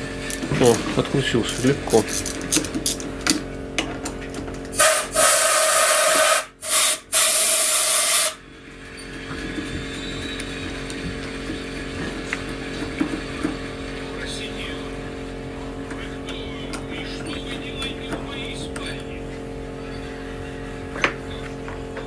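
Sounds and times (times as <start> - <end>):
pneumatic ratchet hissing: 4.7 - 8.4.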